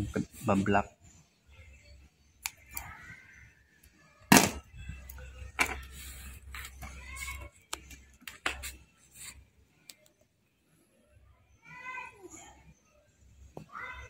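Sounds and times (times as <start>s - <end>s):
sharp plastic clicks and snaps: 2.4s - 2.9s.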